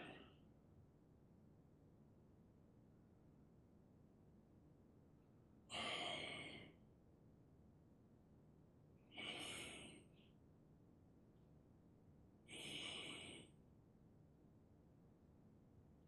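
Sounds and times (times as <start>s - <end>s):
long exhalations: 9.2s - 10.0s, 12.5s - 13.5s.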